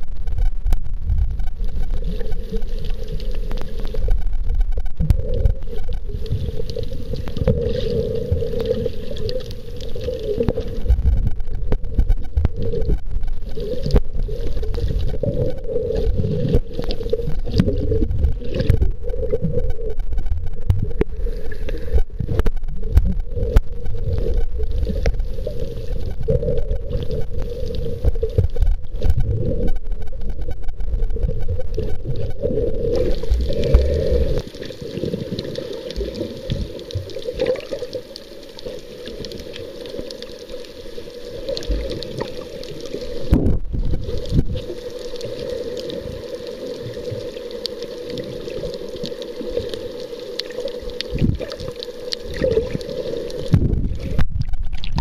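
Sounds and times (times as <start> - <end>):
churning underwater rumble: 0.0 - 38.0, 51.0 - 55.0.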